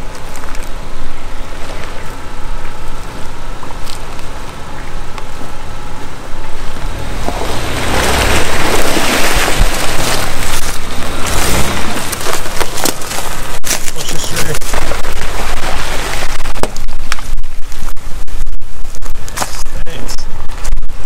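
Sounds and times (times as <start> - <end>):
car engine running: 0.0 - 21.0
loud rushing noise with rumble: 6.3 - 21.0.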